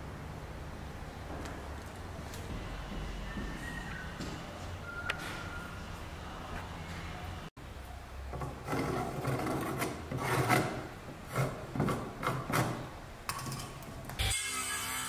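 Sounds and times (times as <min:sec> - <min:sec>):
dividers scratching wood: 0:08.4 - 0:13.0.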